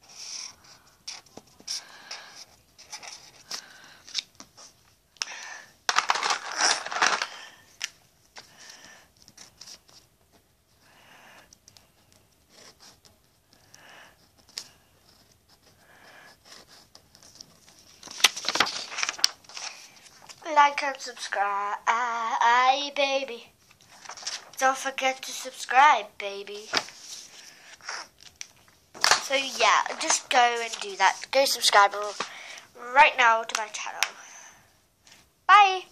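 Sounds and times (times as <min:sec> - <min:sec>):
paper rustling: 0:00.3 - 0:04.9, 0:05.9 - 0:10.5, 0:16.5 - 0:21.4, 0:23.6 - 0:25.8, 0:26.4 - 0:34.1
pencil scratching on paper: 0:12.0 - 0:17.7.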